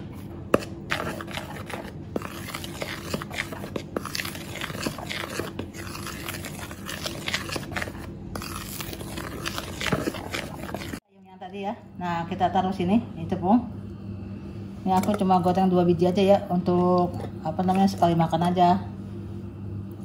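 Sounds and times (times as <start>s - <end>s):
spoon stirring dry flour mix: 0.1s - 11.0s.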